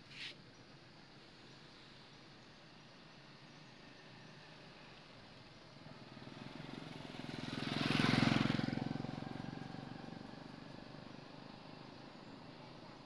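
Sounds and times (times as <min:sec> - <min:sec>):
motor vehicle driving past: 0:05.8 - 0:12.6.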